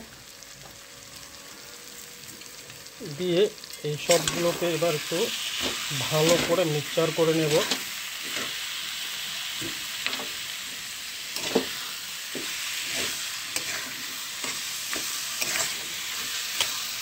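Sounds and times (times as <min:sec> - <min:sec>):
chutney sizzling in oil: 0:00.0 - 0:17.0
metal spatula scraping pan: 0:11.3 - 0:16.9.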